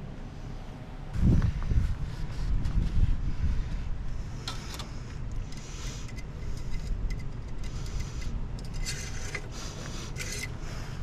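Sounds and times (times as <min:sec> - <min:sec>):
steady low rumble: 0:00.0 - 0:11.0
dipstick clicking and scraping: 0:04.4 - 0:10.6.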